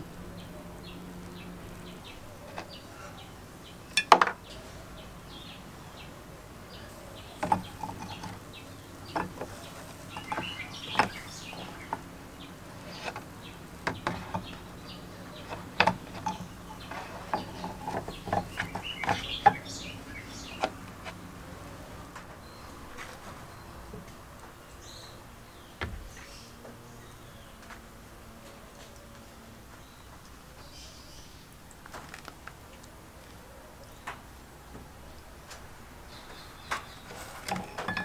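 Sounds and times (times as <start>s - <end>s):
metal parts clinking into plastic tub: 37.2s - 38.0s.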